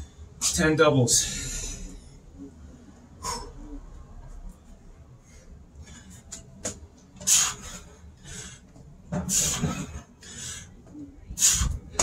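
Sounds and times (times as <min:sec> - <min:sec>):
man breathing heavily: 0:01.1 - 0:04.4, 0:05.0 - 0:06.5, 0:07.2 - 0:12.0.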